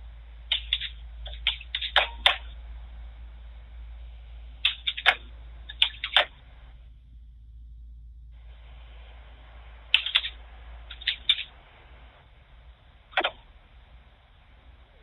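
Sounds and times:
steady low hiss: 0.0s - 15.0s
keyboard typing: 4.6s - 6.3s, 9.9s - 11.5s.

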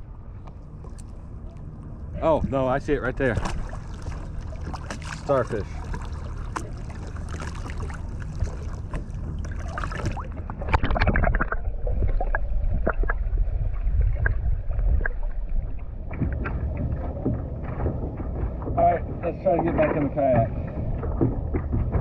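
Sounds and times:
muffled underwater sound: 0.0s - 22.0s
waves lapping around kayak: 0.0s - 22.0s
sharp underwater clicks: 0.4s - 1.9s, 3.2s - 13.3s
water splash: 3.0s - 17.9s
wind on microphone: 6.5s - 22.0s.

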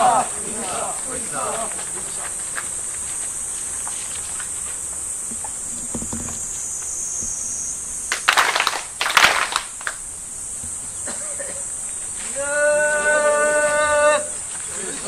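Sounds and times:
high-pitched insect drone: 1.7s - 8.3s
group of people clapping: 8.1s - 10.0s.

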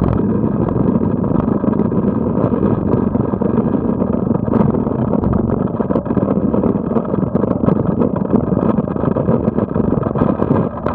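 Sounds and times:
jet ski engine running: 0.0s - 10.9s
water noise: 0.0s - 10.9s
wind noise: 0.0s - 10.9s.

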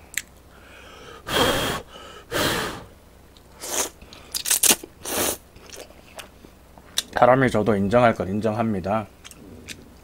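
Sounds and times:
person chewing: 3.6s - 7.1s.

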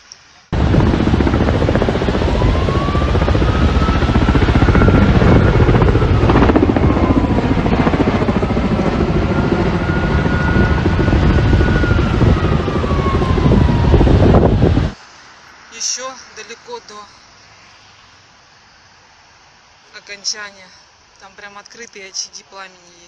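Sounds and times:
helicopter rotor chopping: 0.5s - 15.0s
siren wailing: 0.6s - 15.0s.

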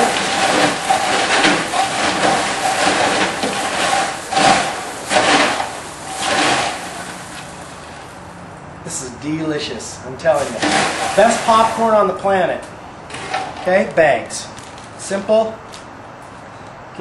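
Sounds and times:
popcorn rustling on metal table: 0.0s - 8.2s, 10.3s - 12.3s, 13.1s - 15.2s.

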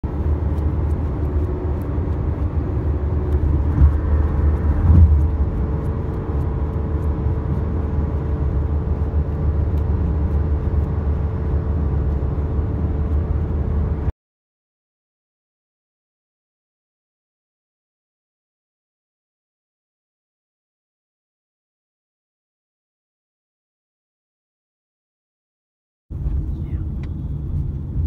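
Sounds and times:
car engine and road rumble: 0.0s - 14.1s, 26.1s - 28.0s.

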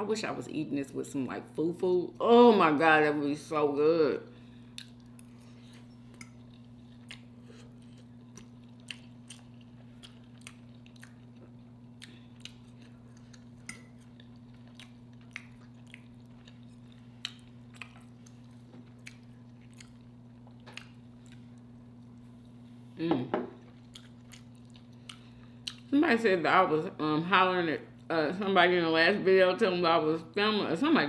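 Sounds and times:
low electrical hum: 0.0s - 31.0s
close chewing and eating: 4.5s - 22.7s, 23.6s - 25.9s.

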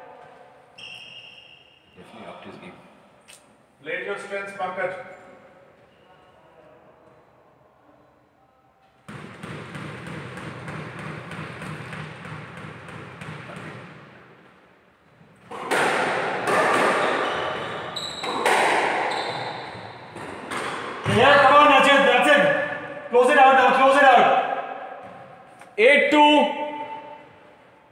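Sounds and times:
shoe squeaks: 0.7s - 2.0s, 16.8s - 20.1s
squash ball strikes echoing: 9.0s - 14.6s, 15.4s - 21.7s.

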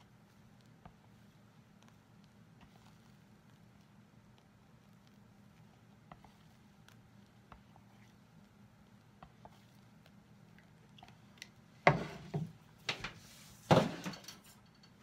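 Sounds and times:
kitchen utensils clattering: 11.9s - 15.0s.

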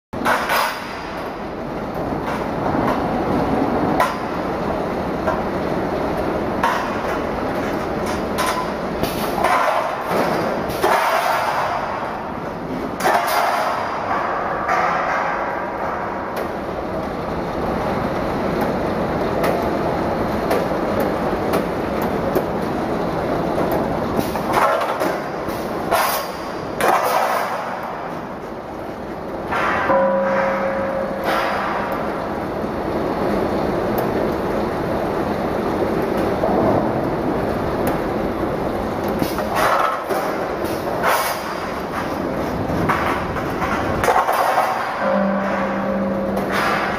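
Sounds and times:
machine running: 15.7s - 46.9s.

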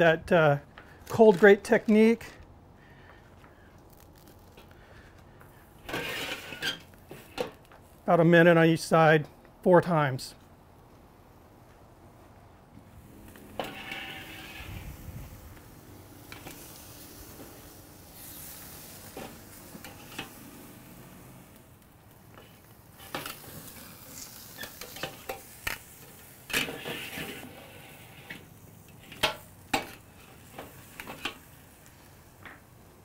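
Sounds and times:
meat sizzling on a grill: 13.0s - 33.0s.

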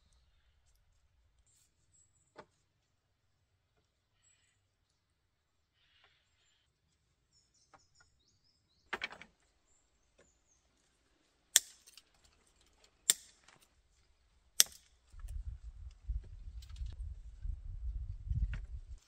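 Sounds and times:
faint bird chirps: 0.0s - 2.7s, 3.7s - 10.9s.

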